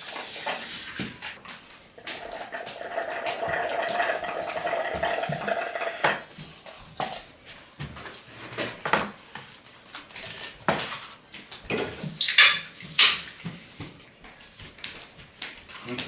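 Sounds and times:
dishes and cutlery clinking: 0:11.7 - 0:13.5.

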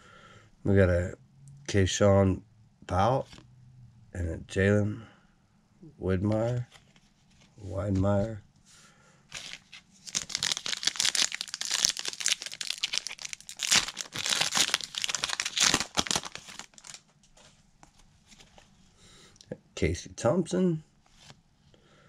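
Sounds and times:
foil wrapper tearing and crinkling: 0:09.3 - 0:17.1.

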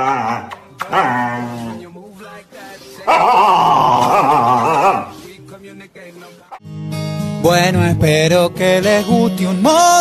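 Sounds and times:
background music with plucked guitar: 0:06.4 - 0:10.0.

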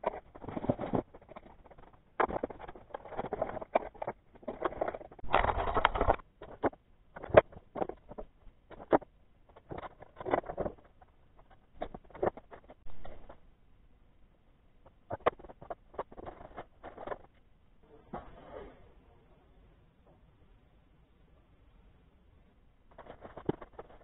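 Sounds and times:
scraping and rustling: 0:00.0 - 0:13.5, 0:14.8 - 0:17.4, 0:22.9 - 0:24.0.

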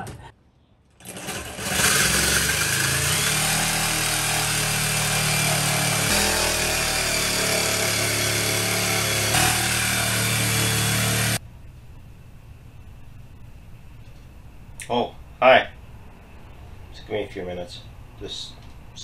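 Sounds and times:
power saw cutting wood: 0:01.0 - 0:11.4.

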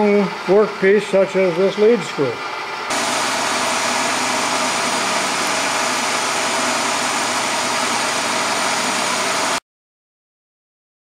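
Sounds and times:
milling machine motor hum: 0:02.4 - 0:09.6.

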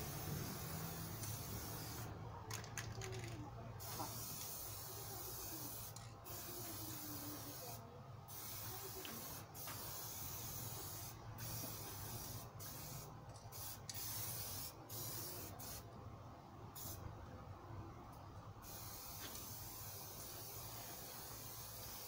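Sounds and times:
paint spray gun hissing: 0:00.0 - 0:02.1, 0:03.8 - 0:15.8, 0:18.6 - 0:22.0.

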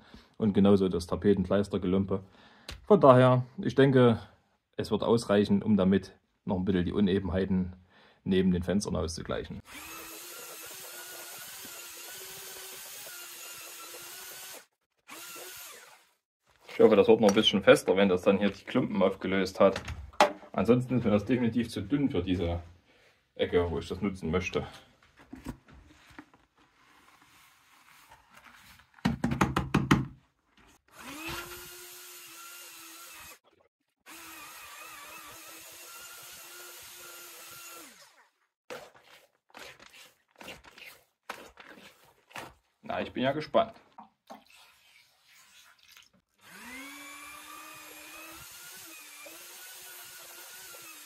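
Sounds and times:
electric drill mixing mortar: 0:09.6 - 0:16.2, 0:30.8 - 0:38.3, 0:46.3 - 0:51.0.

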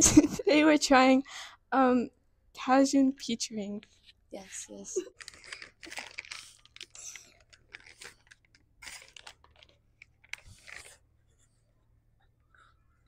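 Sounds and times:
plastic snack bag crinkling: 0:04.7 - 0:11.0.

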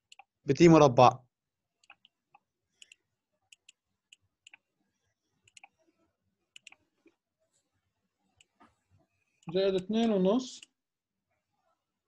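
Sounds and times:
computer mouse clicks: 0:00.0 - 0:00.3, 0:01.8 - 0:04.7, 0:05.4 - 0:05.8, 0:06.5 - 0:06.9.

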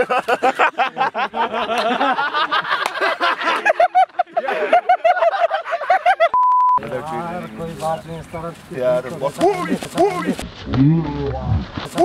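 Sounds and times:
men laughing: 0:00.0 - 0:06.4, 0:09.2 - 0:10.4.

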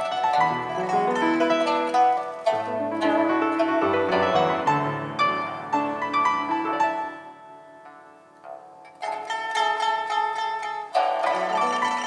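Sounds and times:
grand piano: 0:00.0 - 0:08.9
pipa plucked notes: 0:00.0 - 0:12.0.

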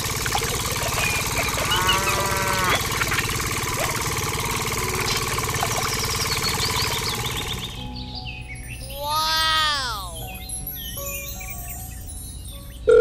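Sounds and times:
small engine chugging: 0:00.0 - 0:08.1.

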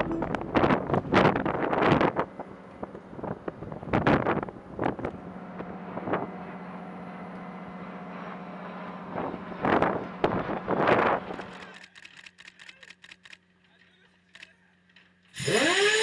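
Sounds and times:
wind buffeting microphone: 0:00.0 - 0:06.3
low machinery hum: 0:00.0 - 0:11.8.

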